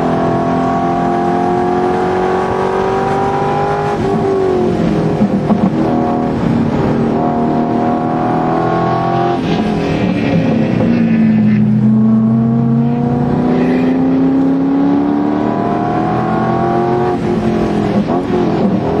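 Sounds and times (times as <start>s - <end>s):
race car engine accelerating: 0.0s - 19.0s.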